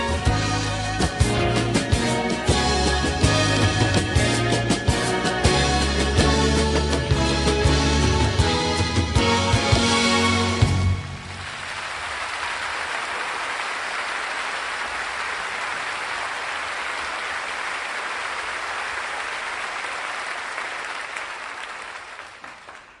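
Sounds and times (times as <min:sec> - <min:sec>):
audience applauding: 0:11.0 - 0:23.0.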